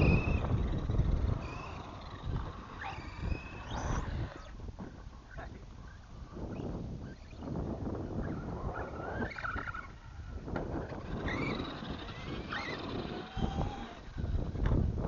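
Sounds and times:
rc truck electric motor whining: 0:00.0 - 0:15.0
wind rumble on microphone: 0:00.0 - 0:15.0.

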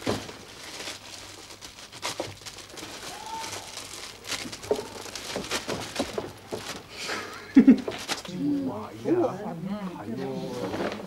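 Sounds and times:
plastic bags crinkling: 0:00.0 - 0:08.4.

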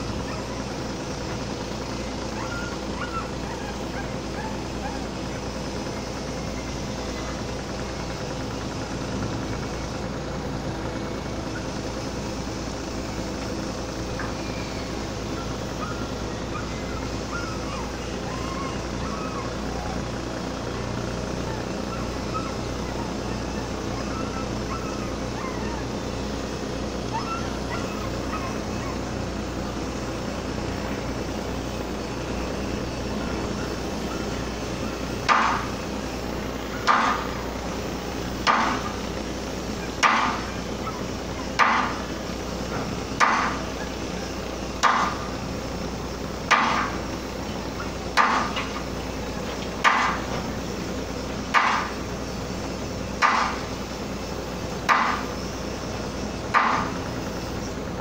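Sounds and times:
low machinery hum: 0:00.0 - 0:58.0
hammer blows: 0:41.6 - 0:42.0.

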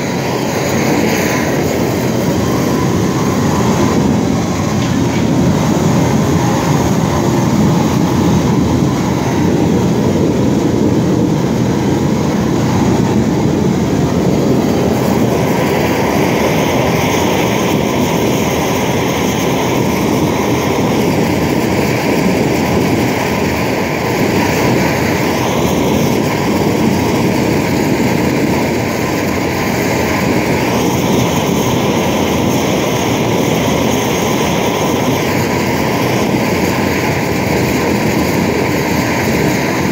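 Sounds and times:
propane torch rushing: 0:00.0 - 0:39.9.

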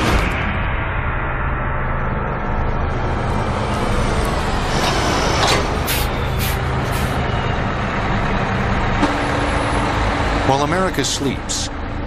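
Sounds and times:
bus engine idling: 0:03.0 - 0:12.0
air brake hisses: 0:05.5 - 0:07.2.

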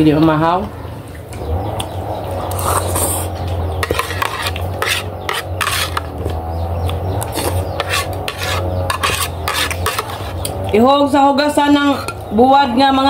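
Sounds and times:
spoon scraping plastic plate: 0:02.5 - 0:06.4, 0:07.1 - 0:10.7.

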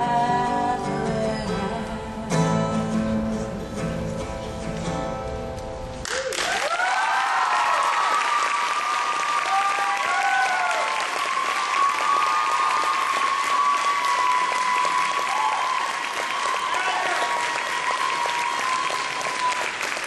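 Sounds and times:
audience applauding: 0:06.0 - 0:20.0
audience whooping: 0:06.1 - 0:20.0.

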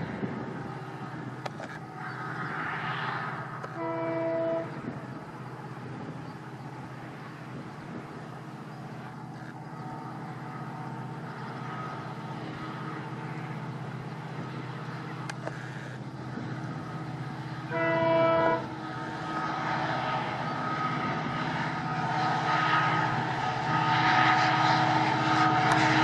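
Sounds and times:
diesel engine droning: 0:00.0 - 0:26.0
train horn blast: 0:03.6 - 0:04.9, 0:17.6 - 0:26.0.

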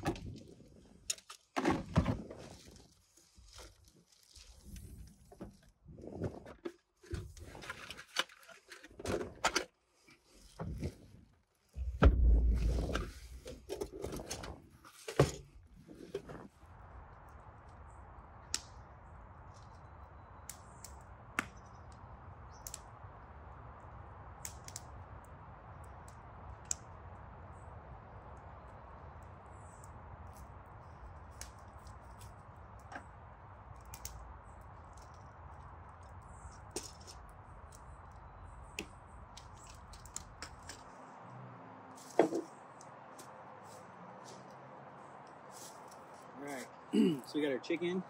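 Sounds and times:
heavy thump: 0:11.8 - 0:12.7.

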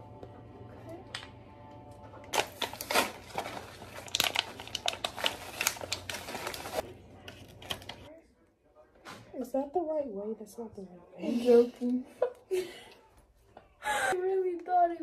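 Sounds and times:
plastic packaging crinkling: 0:02.3 - 0:08.1.

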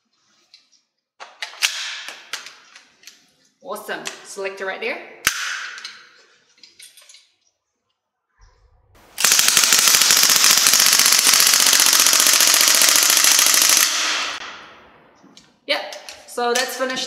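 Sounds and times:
airsoft gun full-auto burst: 0:09.1 - 0:14.6.

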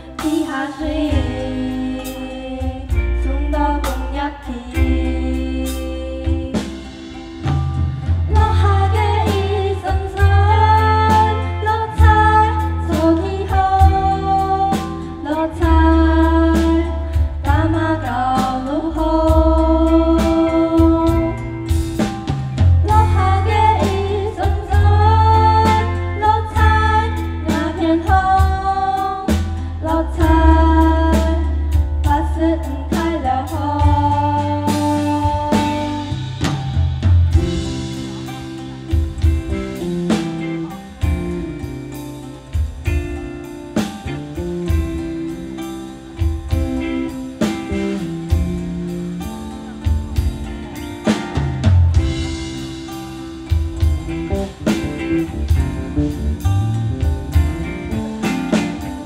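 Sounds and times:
girls singing in unison: 0:00.0 - 0:06.6
bass: 0:00.0 - 0:59.0
drum kit steady beat: 0:00.0 - 0:59.0
plucked strings: 0:30.2 - 0:59.0.

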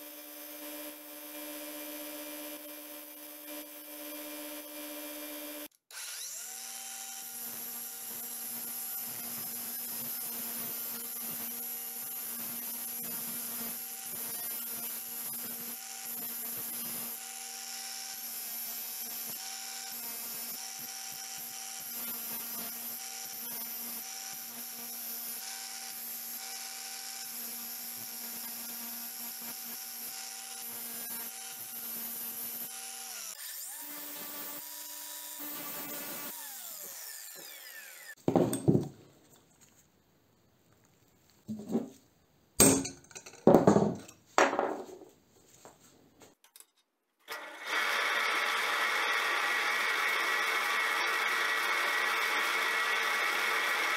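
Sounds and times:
angle grinder grinding steel: 0:05.9 - 0:38.2.

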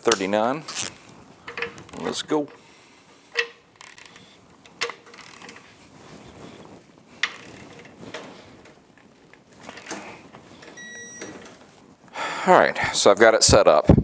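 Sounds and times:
torque wrench ratchet clicking: 0:03.8 - 0:04.2, 0:05.2 - 0:05.6, 0:07.2 - 0:07.8.

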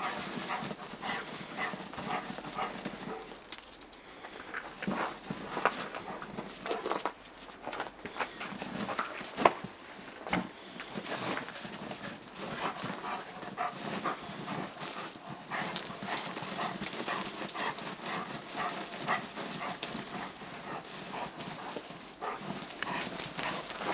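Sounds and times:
snow crunching: 0:00.0 - 0:03.5, 0:11.0 - 0:23.9.

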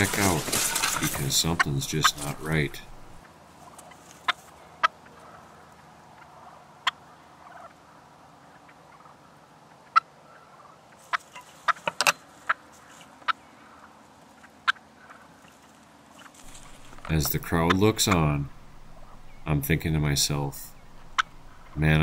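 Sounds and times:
turkey putts and clucks: 0:00.0 - 0:22.0.

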